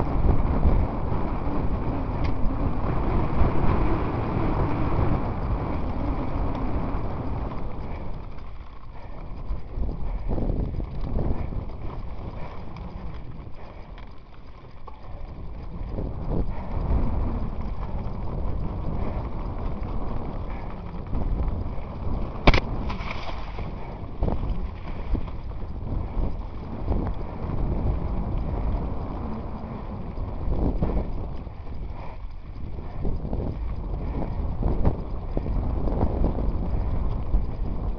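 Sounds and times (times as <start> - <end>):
wind on microphone: 0.0 - 37.9
bike rattles and knocks: 18.8 - 27.3.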